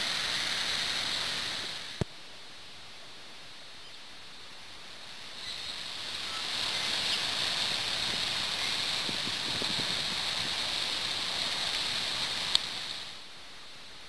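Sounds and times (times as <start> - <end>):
flood river rushing: 0.0 - 2.0, 4.9 - 13.3.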